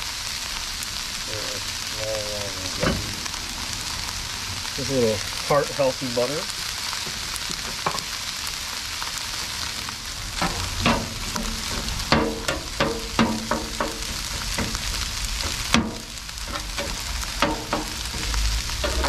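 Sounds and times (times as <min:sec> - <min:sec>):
rice and vegetables sizzling: 0:00.0 - 0:19.0
metal spatula scraping and clanking: 0:10.4 - 0:19.0.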